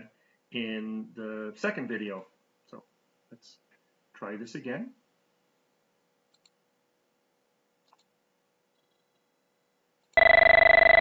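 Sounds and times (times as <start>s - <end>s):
faint mouse clicks: 6.3s - 6.6s, 7.8s - 8.2s
buzzy electronic phone ring: 10.2s - 11.0s.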